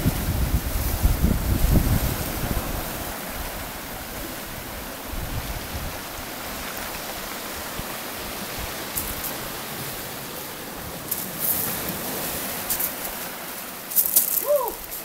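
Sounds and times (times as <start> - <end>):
surf washing onto shingle: 0.0 - 15.0
shingle crunching: 13.9 - 15.0.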